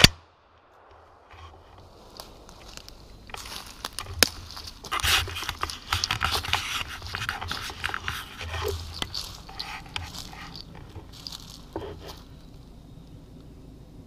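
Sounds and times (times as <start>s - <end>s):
brush crackling against camera: 1.4s - 12.4s
footsteps crunching dry leaves: 1.5s - 12.5s
twig snapping: 2.2s - 11.5s.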